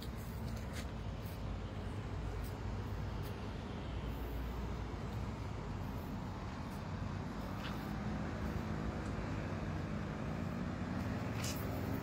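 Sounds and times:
road traffic rumble: 0.0s - 12.0s
vehicle engine hum: 0.0s - 12.0s.

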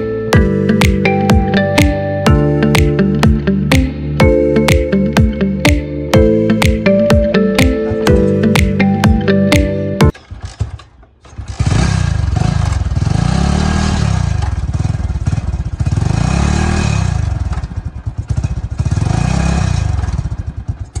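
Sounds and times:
motorcycle engine revving: 10.1s - 21.0s.

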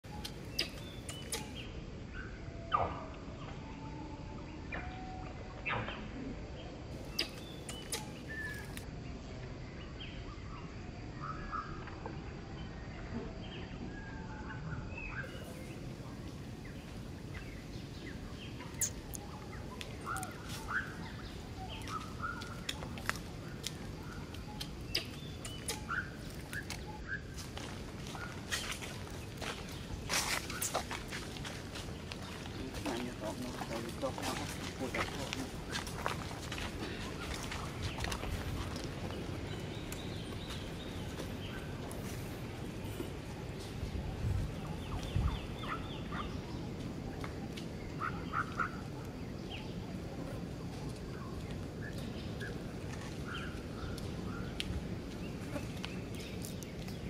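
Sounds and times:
chirps and calls: 0.0s - 8.9s, 9.8s - 57.0s
low background noise: 0.0s - 57.0s.

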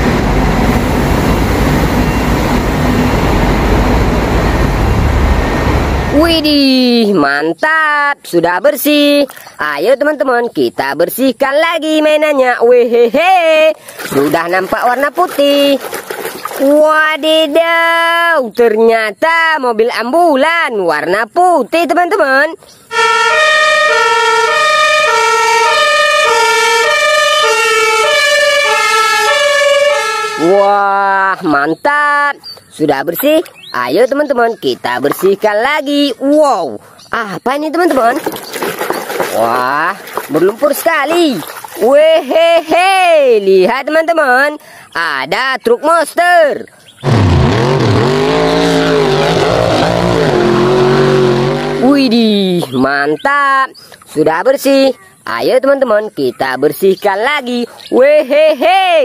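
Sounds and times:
diesel coach engine running: 0.0s - 6.8s
ambulance two-tone siren: 22.9s - 30.8s.

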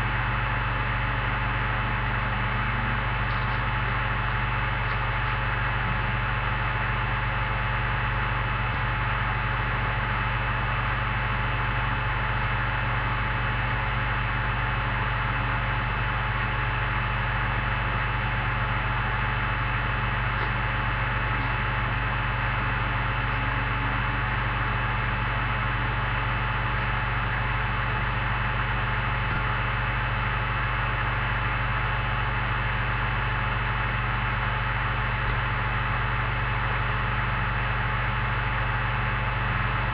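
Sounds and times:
electrical hum with hiss: 0.0s - 39.9s.

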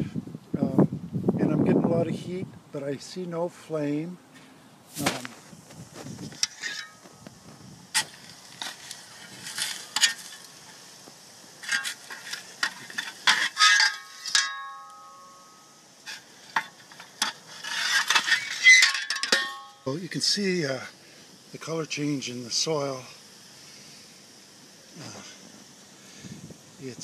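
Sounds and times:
shovel scraping soil: 4.9s - 11.0s, 11.6s - 19.8s
shovel metallic rings: 6.4s - 7.1s, 11.6s - 15.8s, 17.2s - 19.9s.

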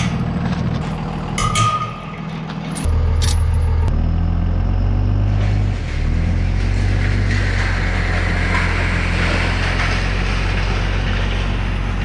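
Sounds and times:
metal chain clinking: 2.7s - 3.9s.

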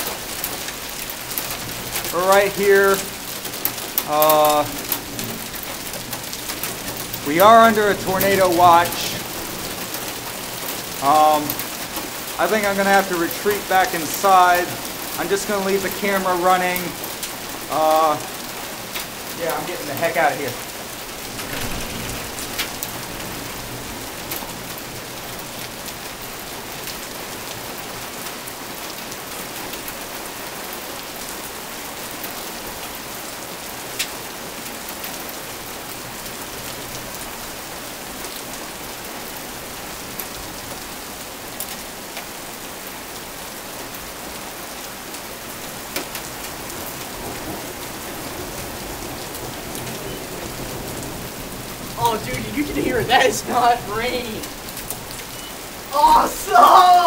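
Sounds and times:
sharp ticks of raindrop impacts: 0.0s - 30.2s, 32.1s - 37.5s, 44.6s - 55.9s
heavy rain on pavement and cars: 0.0s - 57.0s.

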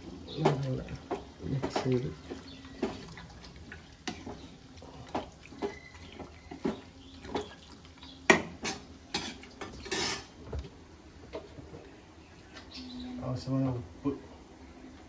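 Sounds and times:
wet food sounds: 0.0s - 13.2s.

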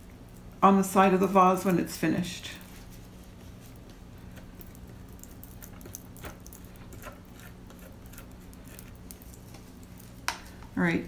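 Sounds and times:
steady low hum: 0.0s - 11.0s
stir stick scraping: 1.2s - 10.2s.

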